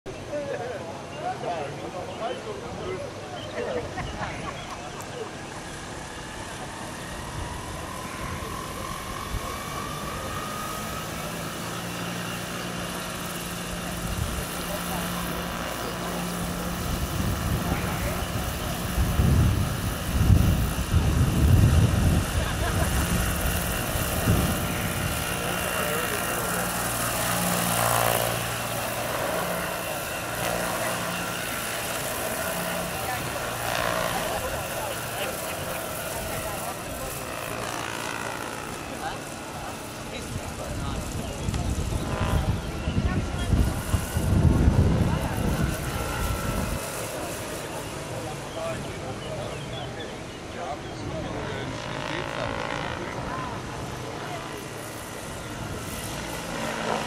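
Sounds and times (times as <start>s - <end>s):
model helicopter motor whining: 4.7s - 57.0s.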